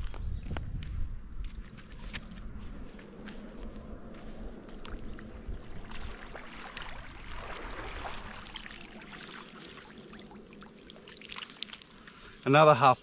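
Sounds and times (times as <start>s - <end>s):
water splashing off net: 5.8s - 12.0s.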